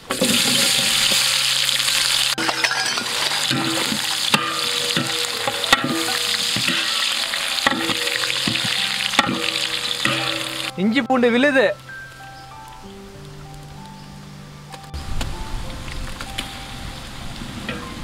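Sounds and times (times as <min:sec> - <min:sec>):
onions sizzling in hot oil: 0:00.0 - 0:11.0
metal ladle scraping pot: 0:00.1 - 0:10.8.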